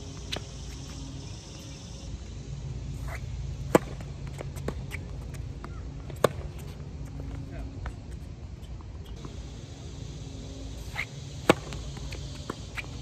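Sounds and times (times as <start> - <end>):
racket striking tennis ball: 3.0 - 5.1, 6.1 - 6.8, 10.8 - 13.0
tennis ball bouncing: 3.0 - 7.2, 10.8 - 13.0.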